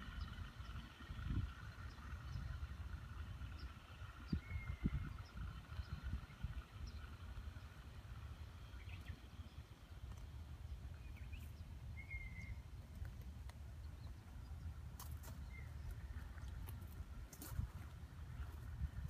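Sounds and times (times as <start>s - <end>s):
low rumble on microphone: 0.0s - 19.0s
bird chirps: 8.5s - 12.9s
faint sharp clicks: 12.9s - 13.7s.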